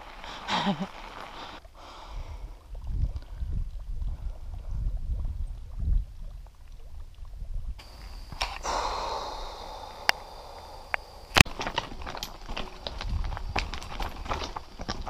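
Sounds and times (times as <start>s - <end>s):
woman blowing out breath: 8.4s - 11.4s.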